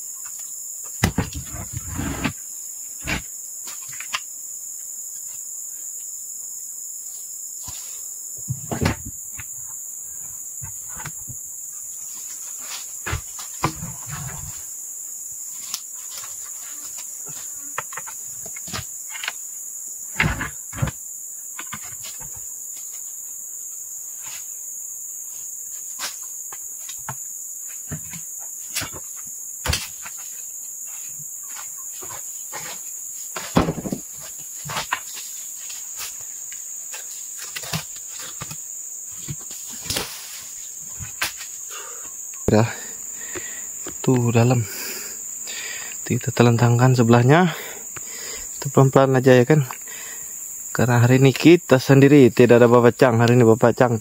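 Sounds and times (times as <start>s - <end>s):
high insect chorus: 0.0s - 54.0s
wooden planks knocking together: 33.4s - 35.2s.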